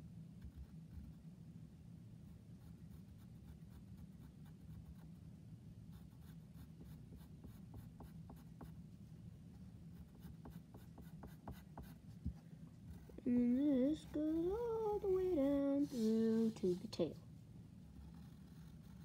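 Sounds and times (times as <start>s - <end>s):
low steady hum: 0.0s - 19.0s
drawing tip scratching paper: 10.0s - 12.2s, 17.9s - 19.0s.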